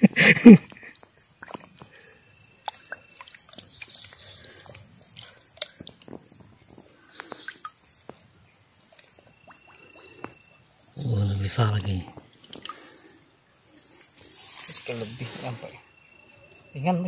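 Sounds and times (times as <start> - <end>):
insect drone: 0.0 - 17.0
water splashing and sloshing: 0.6 - 10.6.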